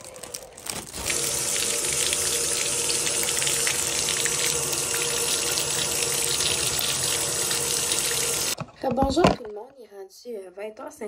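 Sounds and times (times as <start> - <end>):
water running from a tap: 0.2 - 8.6.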